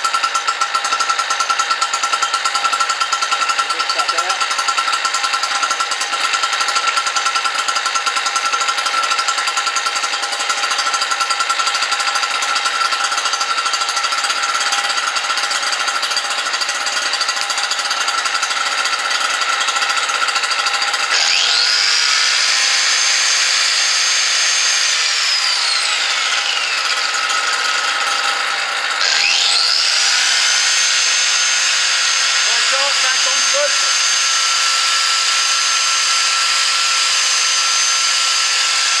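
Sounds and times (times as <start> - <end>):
angle grinder whining: 0.0 - 39.0
two-stroke generator running: 0.0 - 39.0.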